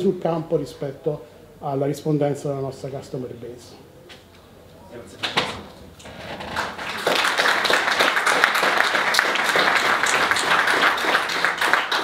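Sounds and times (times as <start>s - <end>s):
audience applauding: 6.4s - 12.0s.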